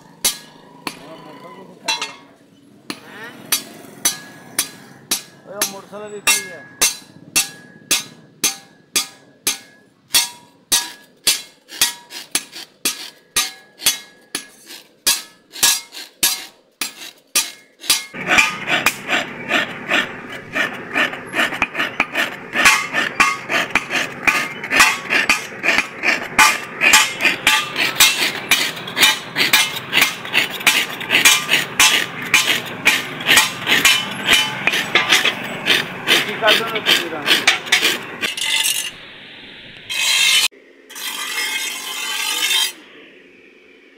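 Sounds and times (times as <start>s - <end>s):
hammer striking blade on anvil: 0.2s - 1.1s, 1.9s - 2.3s, 2.9s - 20.1s, 21.0s - 39.0s
hand file rasping on blade: 10.2s - 38.9s, 39.9s - 42.8s.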